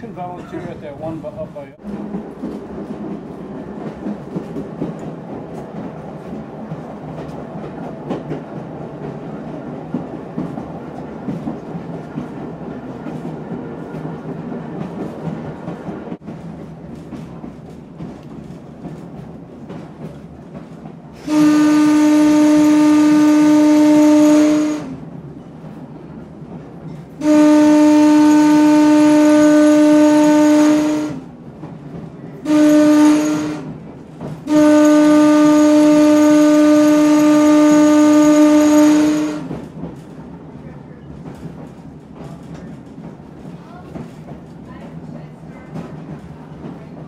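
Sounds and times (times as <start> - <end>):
train running rumble: 0.0 - 47.0
train air whistle blasts: 21.2 - 25.0, 32.5 - 33.7, 34.5 - 39.5.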